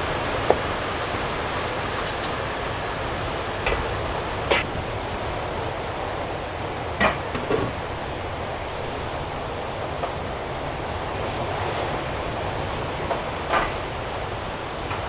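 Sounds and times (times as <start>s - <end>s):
steel pans knocking: 7.0s - 7.8s.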